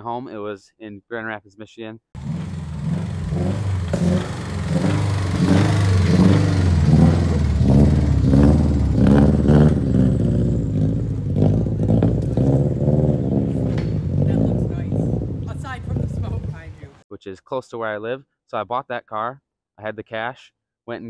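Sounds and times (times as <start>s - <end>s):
car engine revving: 2.2s - 17.0s.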